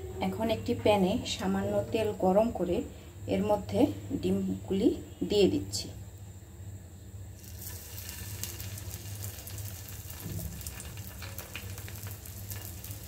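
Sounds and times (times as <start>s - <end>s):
low steady hum: 0.0s - 13.0s
oil sizzling in frying pan: 7.3s - 13.0s.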